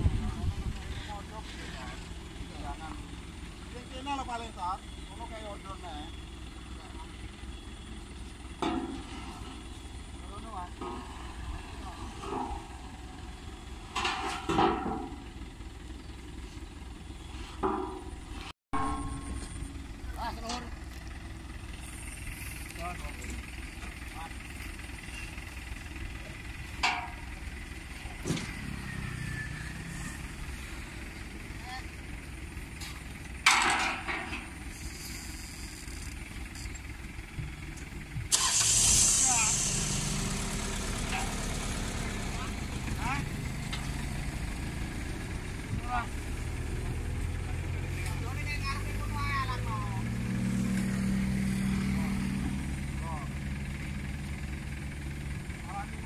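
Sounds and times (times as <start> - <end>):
combine harvester engine idling: 0.0 - 56.0
metallic clatter of steel ramps: 8.6 - 15.4, 26.7 - 27.5, 32.8 - 35.6, 38.7 - 44.3.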